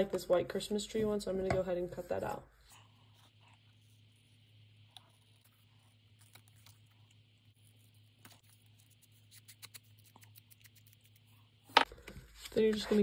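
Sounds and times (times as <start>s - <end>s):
scissors snipping paper: 7.6s - 11.4s.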